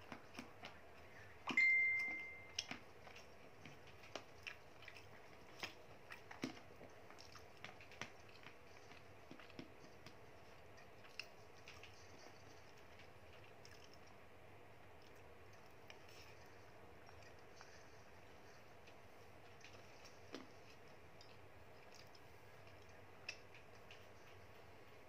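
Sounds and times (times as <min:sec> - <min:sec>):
sharp ringing clink: 0:01.6 - 0:02.6.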